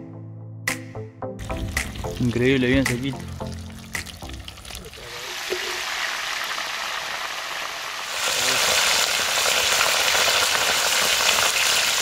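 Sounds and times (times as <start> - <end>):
fish sizzling in hot oil: 3.4 - 12.0.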